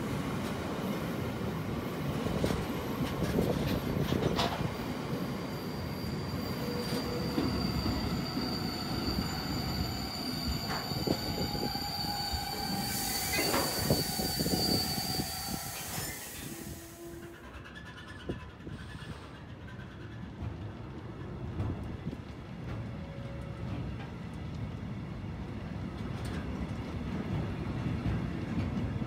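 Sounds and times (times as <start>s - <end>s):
train wheels rumbling: 0.0s - 29.0s
high wheel squeal: 5.4s - 20.3s.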